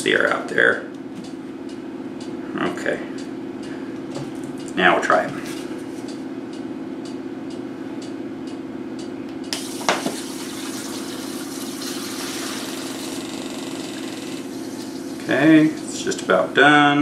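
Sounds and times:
gas injector hissing: 0:09.5 - 0:15.7.

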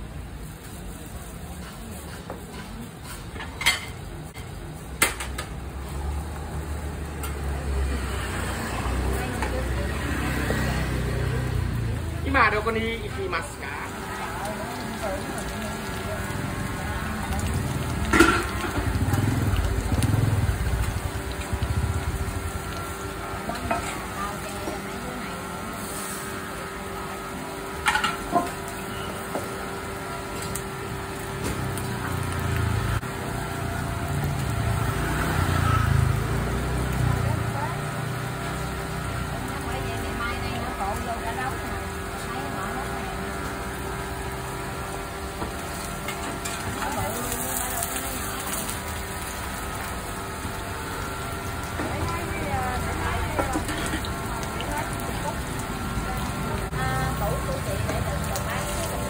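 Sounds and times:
batter sizzling in pans: 0:00.0 - 0:59.0
spoon clanking on metal pans: 0:18.0 - 0:18.8.

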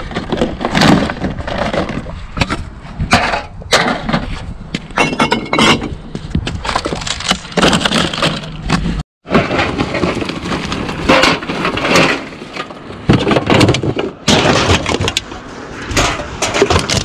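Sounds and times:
cans and bottles clattering: 0:05.0 - 0:05.9, 0:09.3 - 0:15.2.

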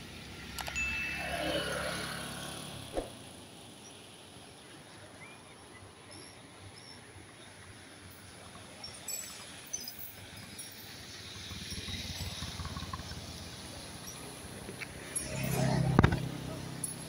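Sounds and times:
passing vehicle: 0:00.0 - 0:04.1, 0:07.6 - 0:17.0
faint bird chirps: 0:05.0 - 0:07.6.

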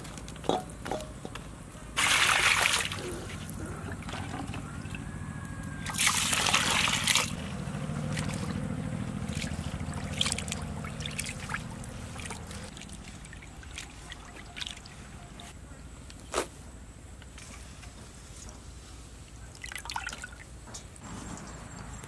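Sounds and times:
splashing: 0:02.0 - 0:05.1, 0:05.8 - 0:15.2, 0:19.5 - 0:20.5
water sloshing in a metal basin: 0:02.0 - 0:05.1, 0:05.7 - 0:15.5, 0:19.3 - 0:21.5.

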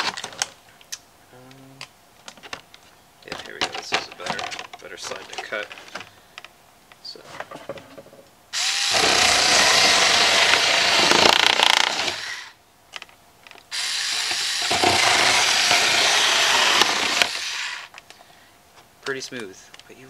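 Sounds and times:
rotary cutter cutting plastic: 0:08.6 - 0:12.6, 0:13.7 - 0:17.9.

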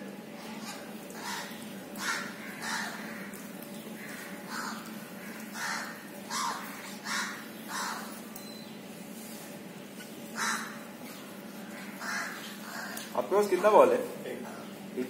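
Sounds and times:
crow cawing: 0:00.6 - 0:03.4, 0:04.0 - 0:08.2, 0:10.4 - 0:10.9, 0:11.6 - 0:13.2.

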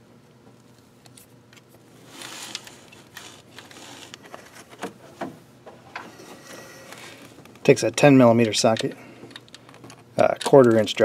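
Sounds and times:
pliers scraping rustle: 0:01.0 - 0:04.8, 0:06.0 - 0:10.9.

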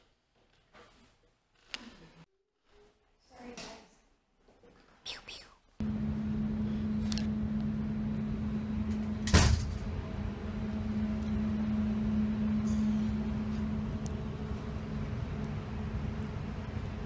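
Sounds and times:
steady low hum: 0:05.8 - 0:17.0.

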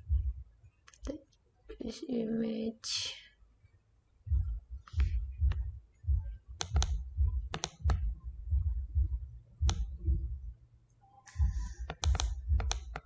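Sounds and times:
dull low thuds: 0:00.0 - 0:00.5, 0:04.2 - 0:10.5, 0:11.4 - 0:13.0
mouse and keyboard clicks: 0:06.6 - 0:08.0, 0:11.8 - 0:13.0.

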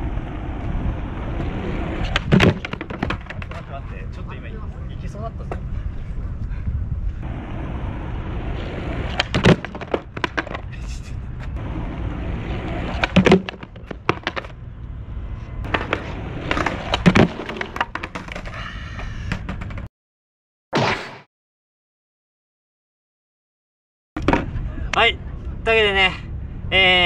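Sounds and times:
skateboard wheels rolling on asphalt: 0:00.0 - 0:04.4, 0:07.0 - 0:19.9
skateboard clacks: 0:01.4 - 0:03.7, 0:09.0 - 0:10.8, 0:12.5 - 0:14.6, 0:15.6 - 0:18.6, 0:19.2 - 0:19.9
plastic traffic cones clattering: 0:02.2 - 0:03.7, 0:09.2 - 0:10.7, 0:13.0 - 0:14.5.

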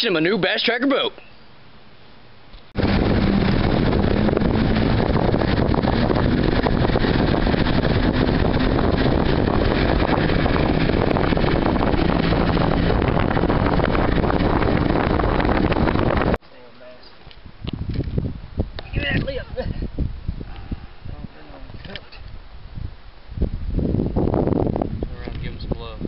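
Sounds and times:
wind on microphone: 0:02.7 - 0:16.4, 0:17.3 - 0:26.0
outboard boat running at speed: 0:02.8 - 0:16.4.

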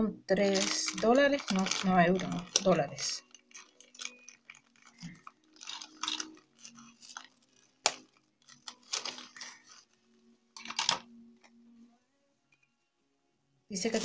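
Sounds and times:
plastic wrap crinkling: 0:00.4 - 0:11.6
scissors cutting wrap: 0:00.5 - 0:10.0.

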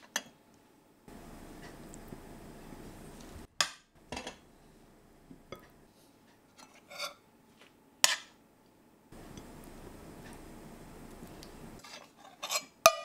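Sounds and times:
tongs and spoon clinking on pan: 0:11.8 - 0:13.0.

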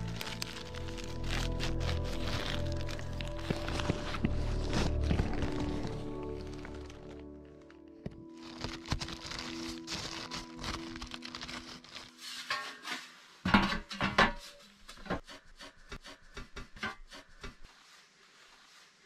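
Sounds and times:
background music: 0:00.0 - 0:12.8.

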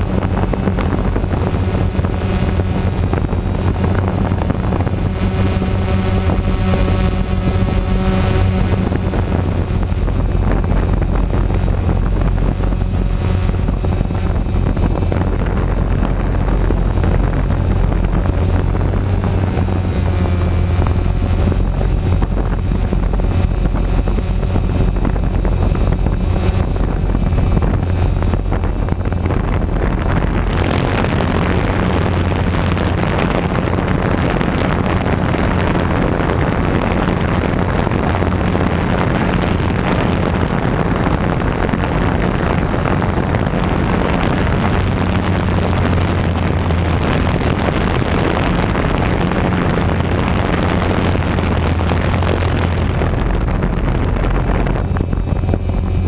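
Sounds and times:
drone propellers buzzing: 0:00.0 - 0:56.0.

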